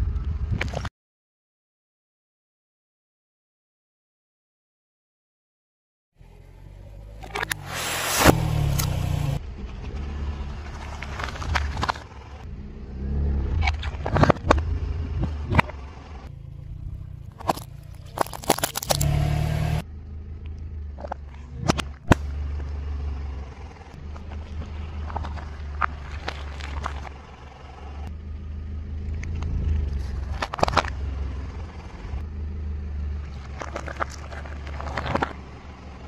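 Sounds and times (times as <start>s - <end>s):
car engine humming low: 6.2s - 36.0s
loud crunching: 13.4s - 19.8s, 20.4s - 28.1s, 33.0s - 36.0s
tyre cracking objects: 17.2s - 19.8s, 24.0s - 27.2s, 33.1s - 36.0s.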